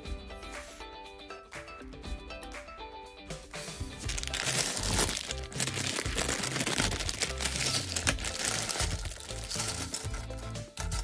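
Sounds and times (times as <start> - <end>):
background music: 0.0 - 11.0
plastic bag crinkling: 4.0 - 10.4
plastic bricks clattering: 4.1 - 11.0.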